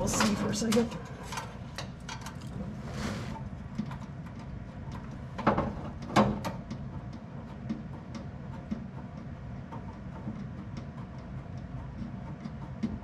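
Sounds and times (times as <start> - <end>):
small clicks and taps: 3.7 - 13.0.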